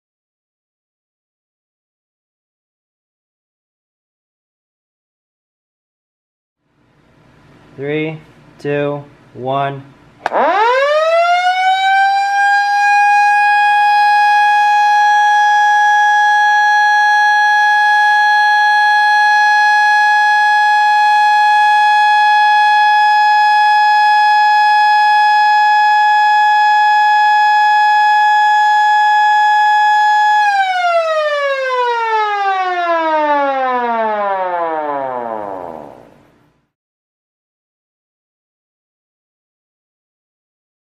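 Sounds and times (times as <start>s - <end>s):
electromechanical siren: 10.2s - 36.3s.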